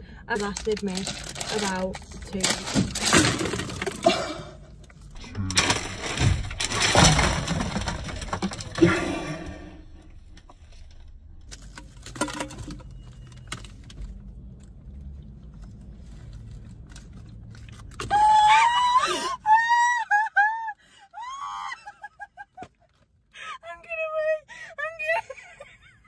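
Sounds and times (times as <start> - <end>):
women laughing hysterically: 18.4 - 22.8.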